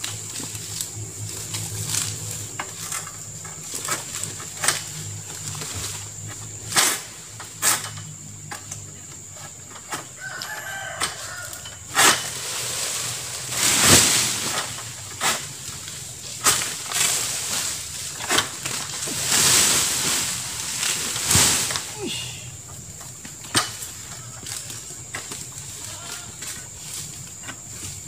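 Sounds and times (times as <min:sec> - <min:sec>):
fronds rustling swish: 0:00.0 - 0:07.9, 0:11.1 - 0:28.0
sickle cracking into palm fronds: 0:00.0 - 0:28.0
rooster crowing: 0:10.1 - 0:11.9.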